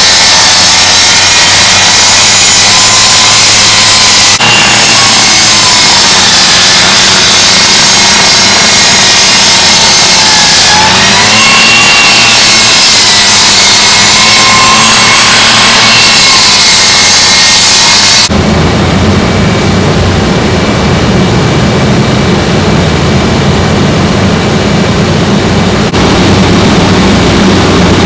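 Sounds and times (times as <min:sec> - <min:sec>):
saw grinding through metal: 0:04.4 - 0:16.1.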